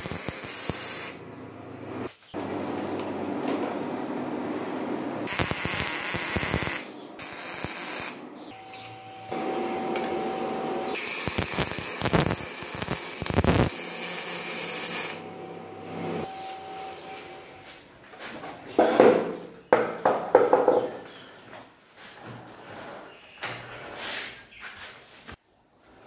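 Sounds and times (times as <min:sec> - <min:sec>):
welder arc on steel: 0:00.0 - 0:01.2, 0:05.3 - 0:08.2, 0:10.9 - 0:15.3.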